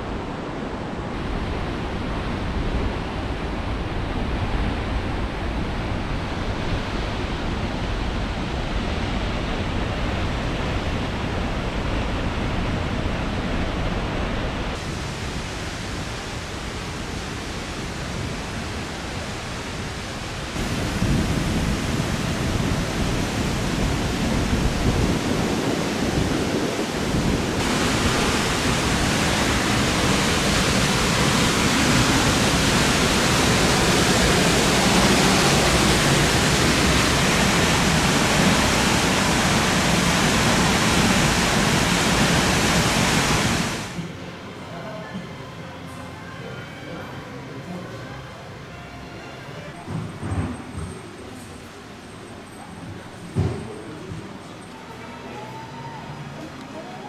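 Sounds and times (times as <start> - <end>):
river rapids rushing: 0.0 - 44.8.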